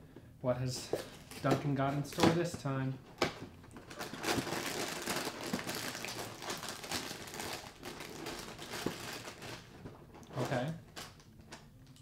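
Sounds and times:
cereal box packaging crinkling: 0:03.8 - 0:11.4.

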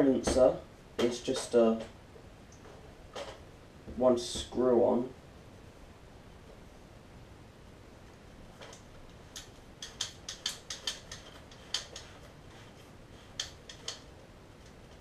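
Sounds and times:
sharp plastic clicks: 0:08.7 - 0:12.1.

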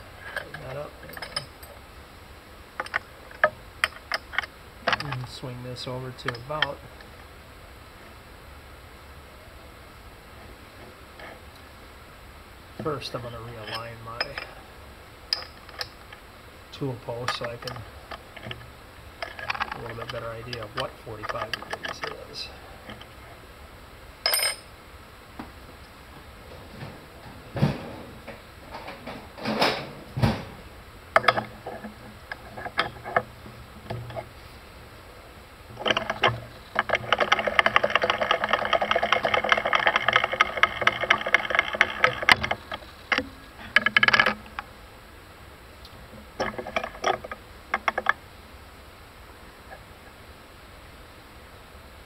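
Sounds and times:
metal knocks and clanks: 0:31.2 - 0:34.3
rapid metallic clicking: 0:35.8 - 0:44.6.

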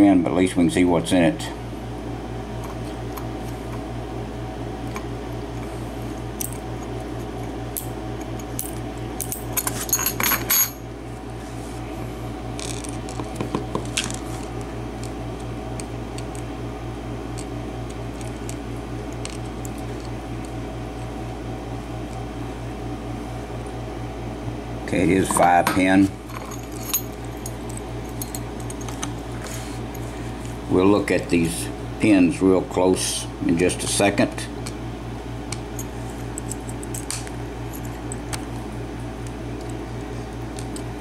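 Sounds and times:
metal lock pins clinking: 0:35.8 - 0:38.5.

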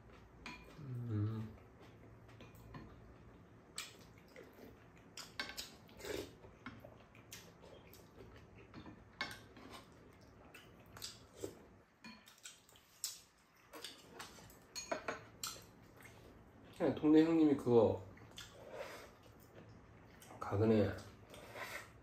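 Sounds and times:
soft eating sounds: 0:00.0 - 0:22.0
utensils clinking on ceramic bowls: 0:14.2 - 0:15.7.

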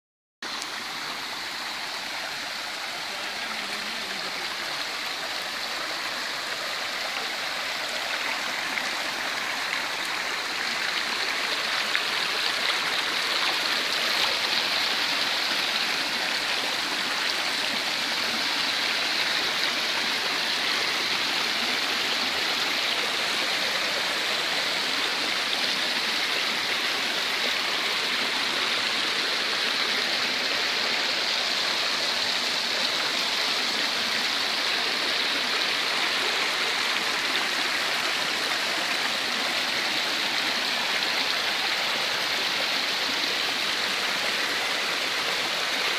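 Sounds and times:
stream rushing over rocks: 0:00.4 - 0:45.9.

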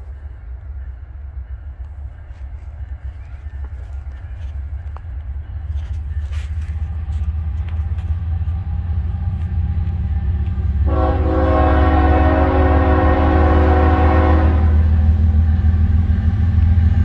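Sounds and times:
locomotive air horn: 0:10.8 - 0:15.1.

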